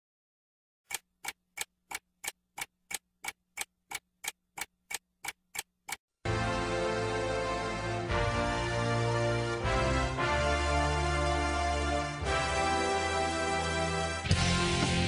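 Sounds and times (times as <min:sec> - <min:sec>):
clock ticking: 0:00.9 - 0:06.0
loud music: 0:06.3 - 0:15.0.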